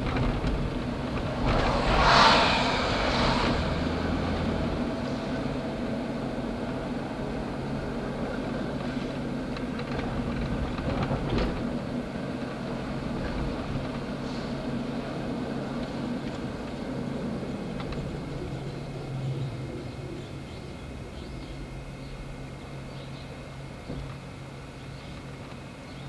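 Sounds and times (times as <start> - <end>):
streetcar rumble and hum: 0.0 - 26.0.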